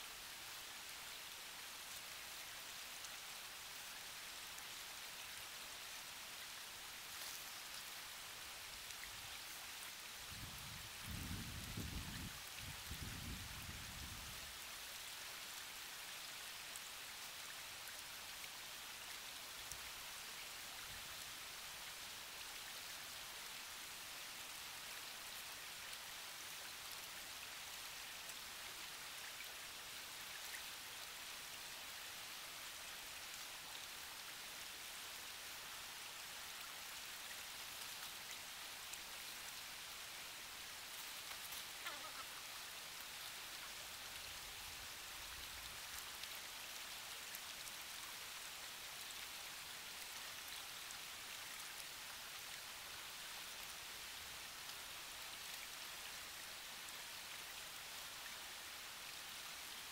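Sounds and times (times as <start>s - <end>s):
creek water running: 0.0s - 59.9s
small ticks: 41.0s - 42.3s.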